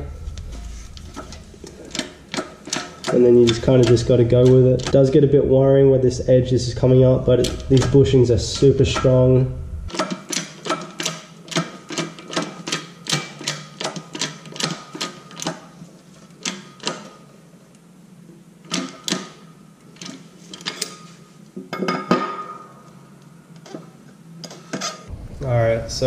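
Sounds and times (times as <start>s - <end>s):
hydraulic press clicking: 0.5s - 5.2s.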